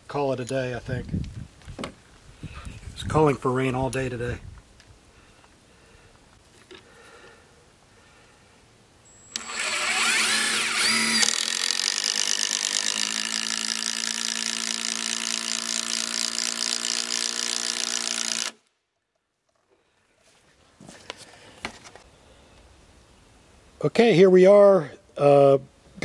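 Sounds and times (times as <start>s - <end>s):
impact driver driving screw: 9.3s - 18.6s.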